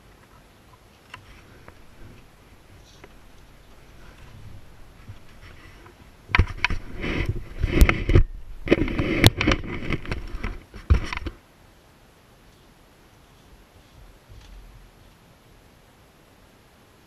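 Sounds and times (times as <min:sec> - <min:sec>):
rustling and scraping: 0:00.0 - 0:11.4, 0:12.5 - 0:15.3
sharp knocks: 0:01.6 - 0:11.3.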